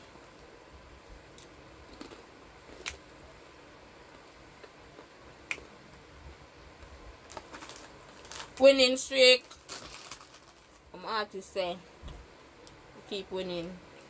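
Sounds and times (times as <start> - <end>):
chewing dry crackers: 1.4 - 3.0.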